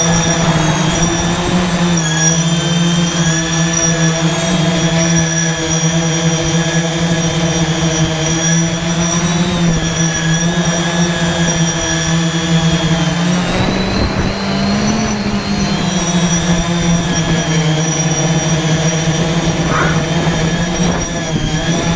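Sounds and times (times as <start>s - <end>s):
drone motors whining: 0.0s - 21.9s
rush of noise: 19.2s - 21.5s.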